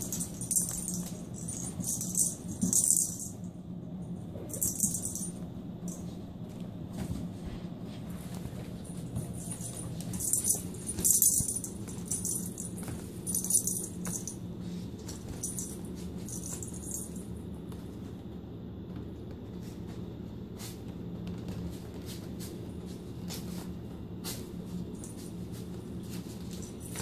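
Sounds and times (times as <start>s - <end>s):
jingle-bell cat toy rattling: 0.0s - 3.5s, 4.4s - 6.0s, 8.6s - 14.4s, 15.0s - 17.3s, 26.0s - 27.0s
steady low hum: 0.0s - 27.0s.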